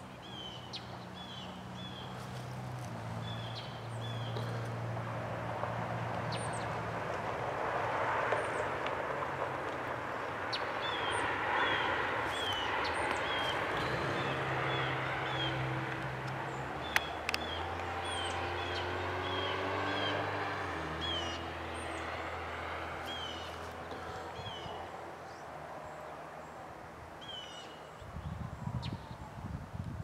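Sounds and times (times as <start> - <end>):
engine running: 0.0 - 26.5
bird chirping: 10.5 - 22.5.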